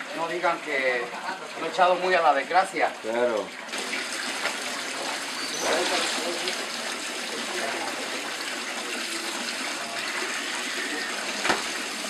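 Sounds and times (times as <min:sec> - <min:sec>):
tap water running into tub: 0:00.0 - 0:12.0.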